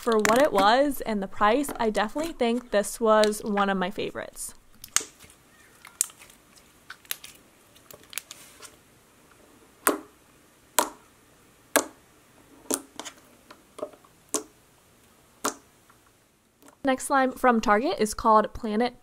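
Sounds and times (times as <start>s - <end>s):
noise putty popping: 15.4s - 15.7s.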